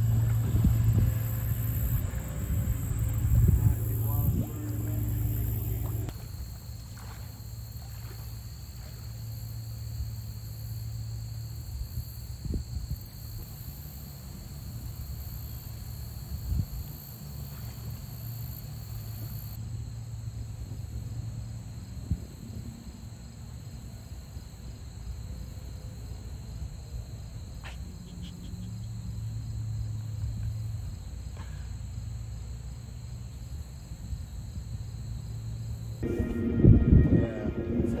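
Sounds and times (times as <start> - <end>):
low rumble: 0.0 - 6.2, 36.0 - 38.0
high-pitched insect chorus: 0.0 - 38.0.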